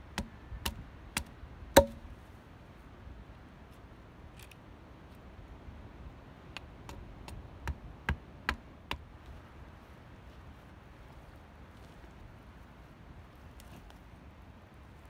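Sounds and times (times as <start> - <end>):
hatchet chopping wood: 0.1 - 2.1, 6.8 - 9.1.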